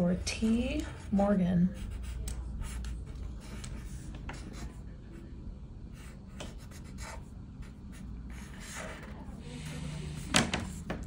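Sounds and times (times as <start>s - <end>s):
marker scratching on paper: 0.7s - 5.3s, 5.9s - 11.0s.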